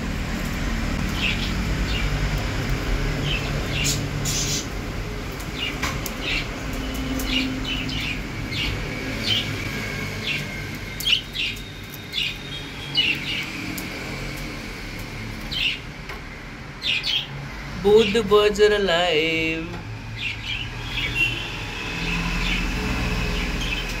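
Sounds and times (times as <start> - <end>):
budgerigars chirping: 3.3 - 4.7.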